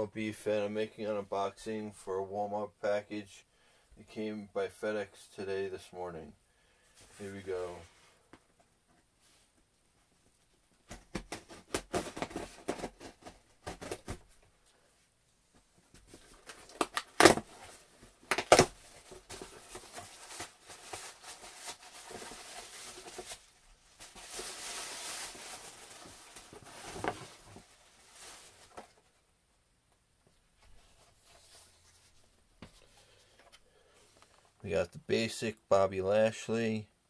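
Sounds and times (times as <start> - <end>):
rustling plastic and cardboard: 10.3 - 14.6, 15.5 - 29.3.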